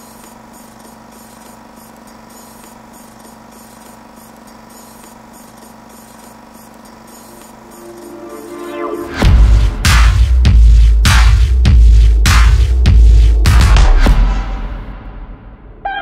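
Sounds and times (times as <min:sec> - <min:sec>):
electronic drone with throb: 0:07.1 - 0:16.0.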